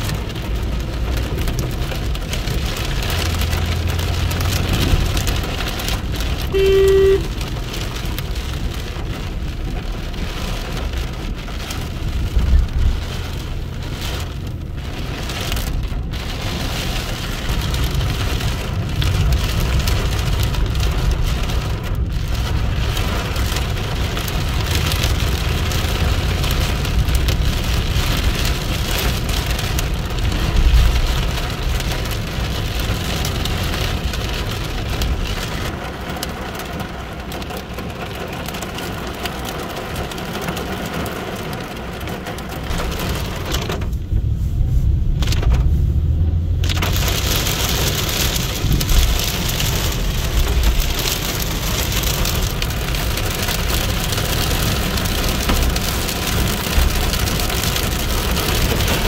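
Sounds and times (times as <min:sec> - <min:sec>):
low rumbles: 0:00.0 - 0:40.0, 0:40.6 - 0:59.0
heavy rain pouring: 0:00.0 - 0:59.0
short beep: 0:06.5 - 0:07.3.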